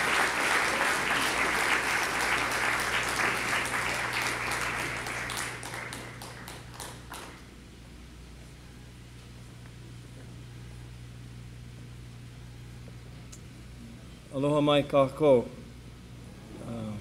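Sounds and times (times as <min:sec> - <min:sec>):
audience applauding: 0:00.0 - 0:07.4
steady low hum: 0:00.0 - 0:17.0.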